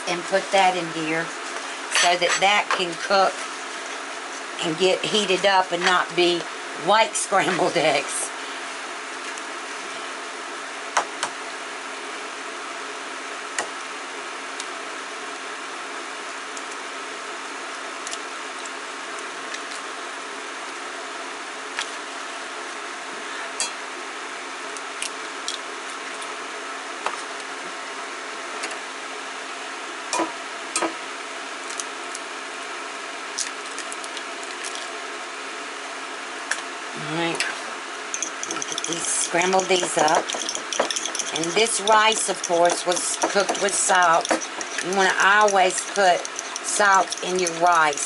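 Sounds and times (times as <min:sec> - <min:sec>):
steady mechanical hum: 0:00.0 - 0:48.0
eggs cracking on glass: 0:38.2 - 0:47.6.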